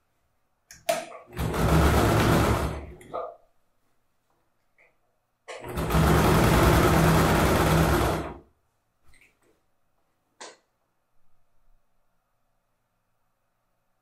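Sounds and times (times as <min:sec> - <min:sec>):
electric sewing machine running: 0:01.3 - 0:03.0, 0:05.6 - 0:08.4.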